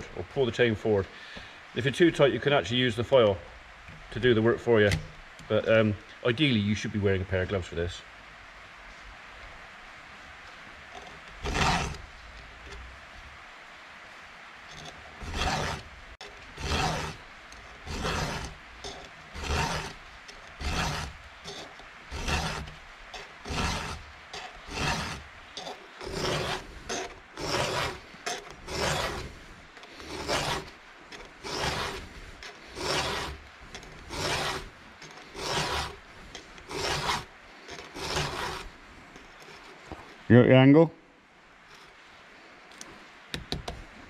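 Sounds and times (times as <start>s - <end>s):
file rasping on saw chain: 10.9s - 12.8s, 14.7s - 39.9s.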